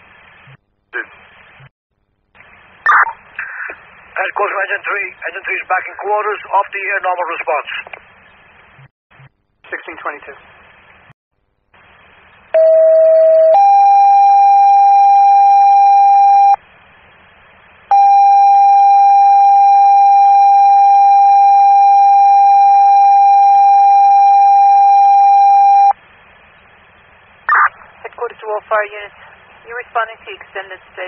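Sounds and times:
radio hiss: 0.0s - 1.7s, 2.4s - 8.0s, 8.8s - 11.1s, 26.6s - 31.0s.

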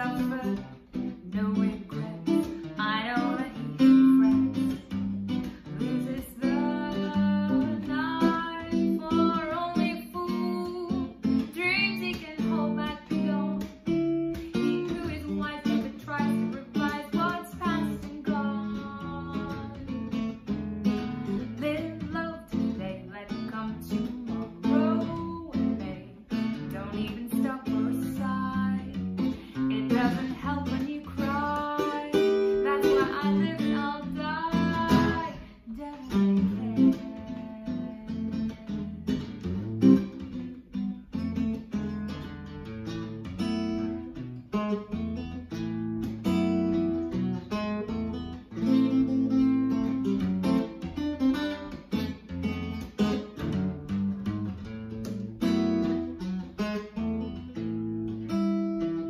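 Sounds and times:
woman singing jazz: 0.0s - 40.2s
guitar plucking chords: 0.0s - 59.0s.

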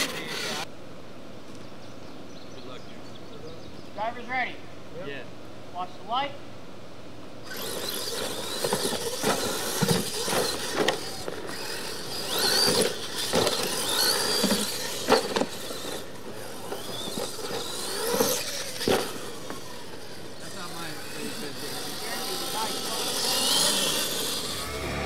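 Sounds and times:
toy truck motors whining: 0.0s - 0.7s, 7.5s - 25.0s
tyres scrabbling on dirt: 7.5s - 24.7s.

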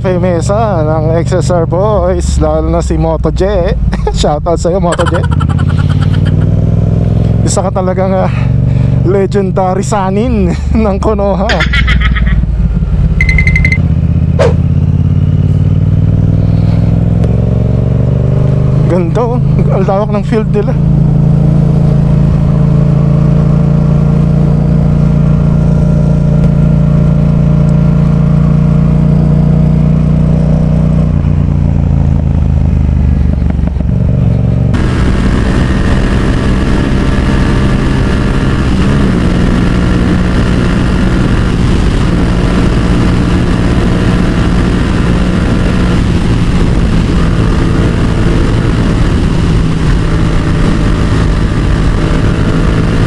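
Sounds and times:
motorcycle engine running: 0.0s - 53.0s
wind noise: 31.1s - 53.0s.

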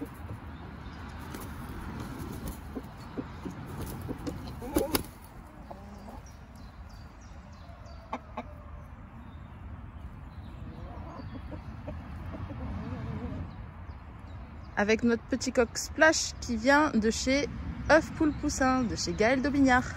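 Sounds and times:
chickens clucking softly: 2.1s - 9.2s, 10.0s - 13.7s.

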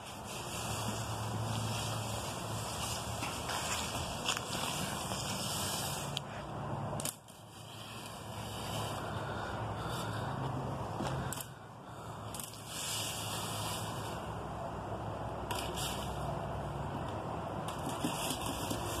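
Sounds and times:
dry leaves rustling: 0.0s - 10.3s, 11.2s - 14.7s
leaf rake scraping across tiles: 0.0s - 10.3s, 11.1s - 14.5s, 15.5s - 16.4s.

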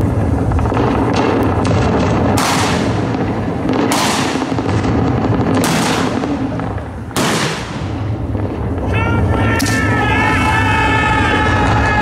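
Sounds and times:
cannon shots: 0.0s - 10.0s.

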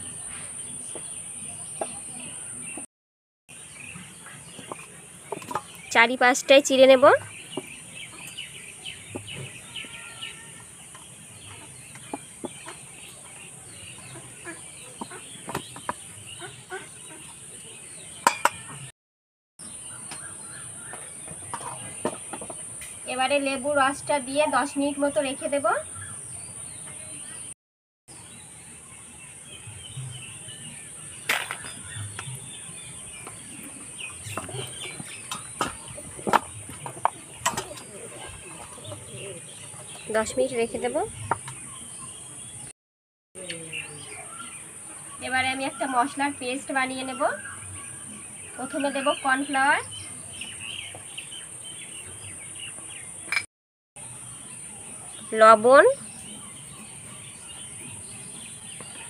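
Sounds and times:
birds chirping: 0.0s - 2.9s, 3.5s - 18.9s, 19.6s - 42.7s, 43.4s - 59.0s
chickens clucking: 10.9s - 18.9s, 33.2s - 40.1s.

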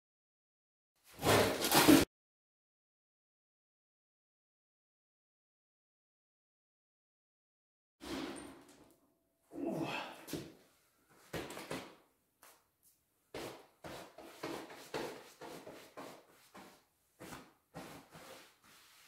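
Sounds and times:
knocks and scuffs of person moving: 10.2s - 18.4s.

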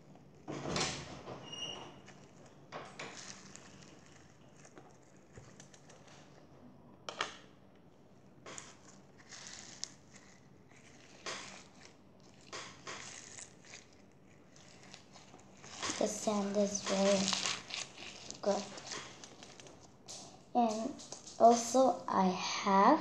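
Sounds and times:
crunchy slime crackling: 1.6s - 6.4s, 8.4s - 21.6s.

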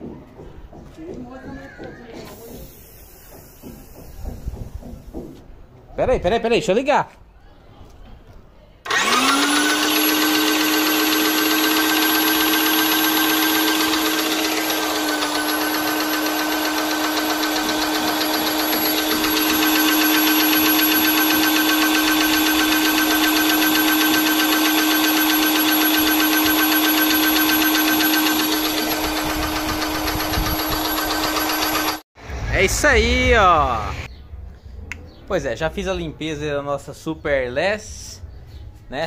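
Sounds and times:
paint sprayer pump running: 2.3s - 5.2s, 8.9s - 32.0s.

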